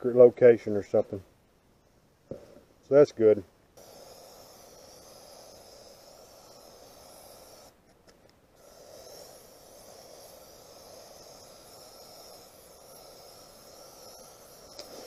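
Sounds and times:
aerosol spray can hissing: 3.8s - 15.0s.

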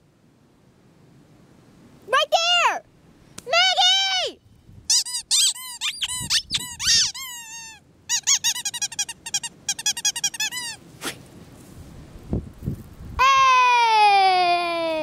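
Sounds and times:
squeaky dog toy squeaking: 4.9s - 10.8s.

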